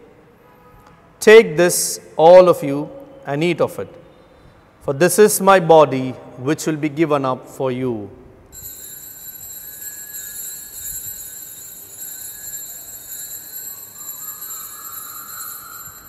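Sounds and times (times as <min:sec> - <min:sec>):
altar bells ringing: 0:08.5 - 0:16.0.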